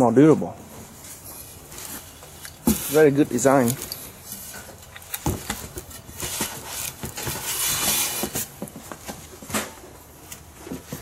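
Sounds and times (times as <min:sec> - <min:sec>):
rustling scrape on cardboard: 0:01.0 - 0:04.6, 0:05.6 - 0:09.2.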